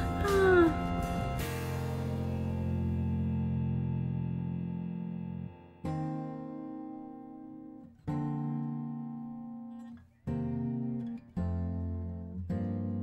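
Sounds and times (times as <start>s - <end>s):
acoustic guitar strumming chords: 0.0s - 13.0s.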